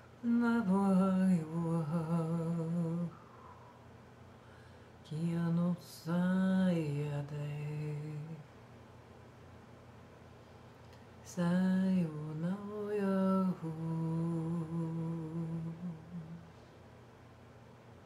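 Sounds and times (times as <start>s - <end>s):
woman humming: 12.1s - 16.5s.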